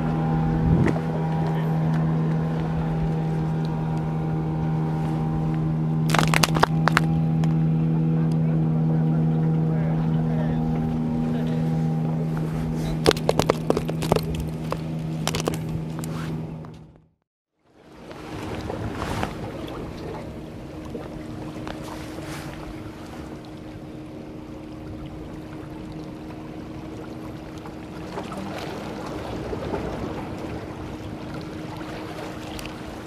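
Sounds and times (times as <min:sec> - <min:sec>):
wind on microphone: 0:00.0 - 0:01.4
water lapping at rocks: 0:06.1 - 0:07.6, 0:10.8 - 0:16.2, 0:24.6 - 0:33.0.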